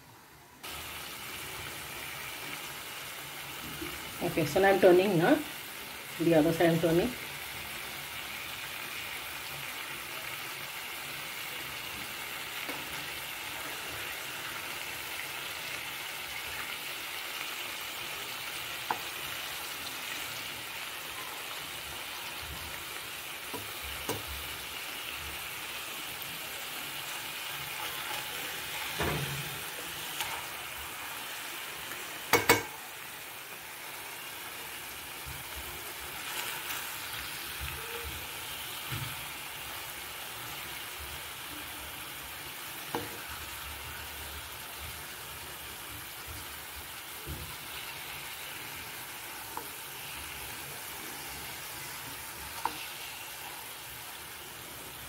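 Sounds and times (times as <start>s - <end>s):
chicken sizzling in hot oil: 0.6s - 55.0s
spatula knocking against pan: 32.3s - 32.7s.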